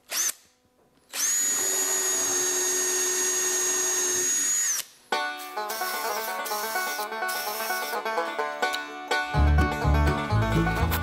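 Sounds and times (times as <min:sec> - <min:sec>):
drill boring into wood: 0:00.1 - 0:00.4, 0:01.1 - 0:04.9
banjo music: 0:05.1 - 0:11.0.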